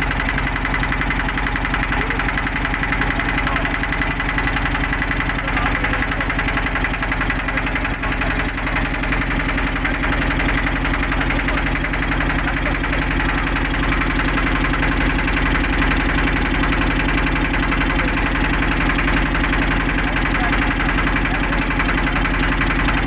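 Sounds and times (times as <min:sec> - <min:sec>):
engine running steadily: 0:00.0 - 0:23.0.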